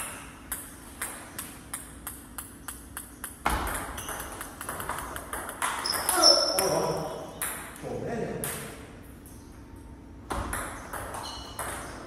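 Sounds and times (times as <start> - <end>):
table tennis ball clicking: 0.5 - 6.2.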